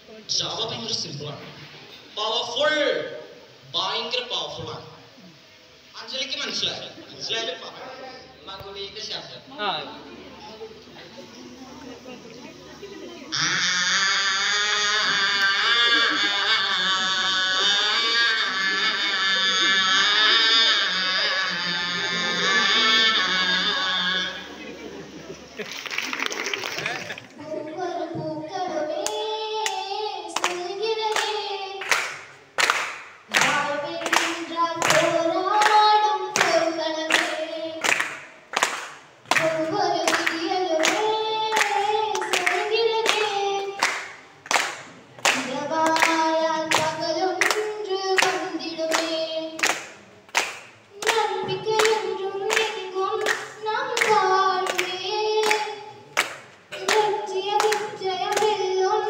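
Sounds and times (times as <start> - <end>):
woman singing over loudspeaker: 13.3 - 24.4, 33.3 - 38.0
audience clapping along: 25.5 - 27.4, 29.0 - 58.7.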